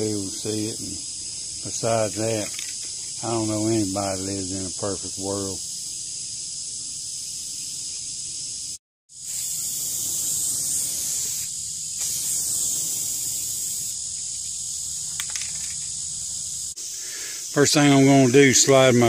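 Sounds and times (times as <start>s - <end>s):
aerosol spray can hissing: 5.6s - 19.0s.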